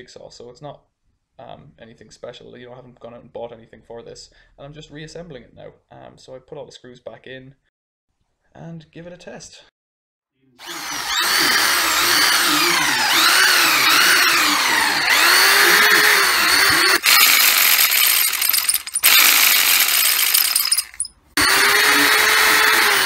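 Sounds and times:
jigsaw motor running: 10.6 - 23.0.

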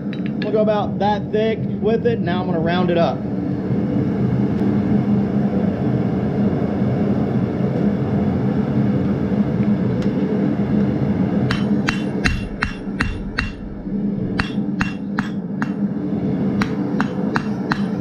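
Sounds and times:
steady low drone: 0.0 - 18.0
hammer ringing on anvil: 11.5 - 13.7, 14.4 - 15.8, 16.6 - 18.0.

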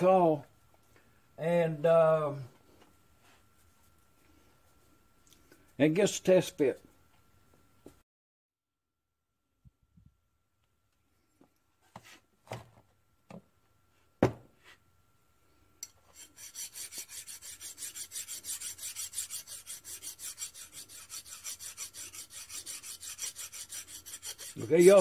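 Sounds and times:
knocks on a workbench: 14.2 - 14.5
hand file rasping on metal: 16.1 - 25.0.

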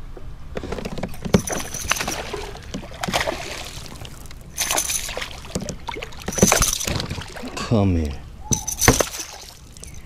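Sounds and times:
water splashing beside a kayak: 0.6 - 7.6, 8.6 - 10.0.

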